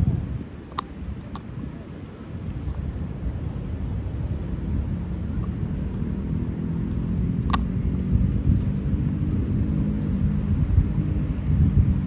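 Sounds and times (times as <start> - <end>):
wind buffeting microphone: 0.0 - 12.0
sharp click: 7.4 - 7.7.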